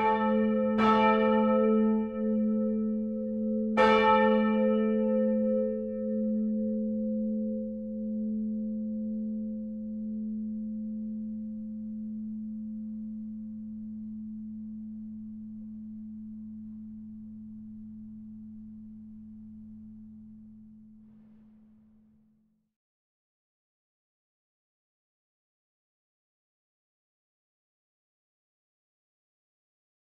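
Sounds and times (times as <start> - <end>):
church bell hum note lingering: 0.0 - 21.7.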